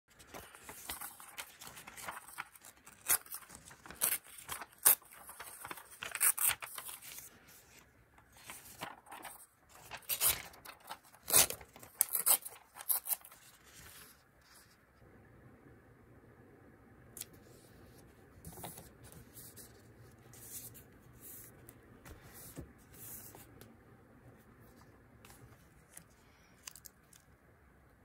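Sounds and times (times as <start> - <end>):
paper rustling and tearing: 0.1 - 14.6.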